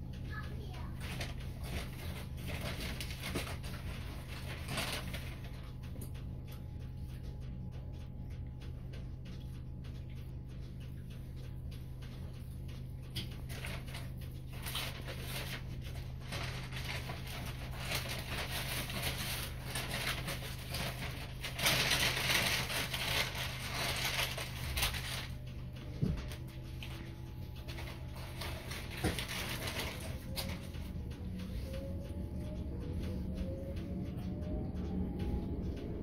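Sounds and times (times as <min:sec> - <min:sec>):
train interior low hum: 0:00.0 - 0:36.0
wheels rushing on rail: 0:28.9 - 0:36.0.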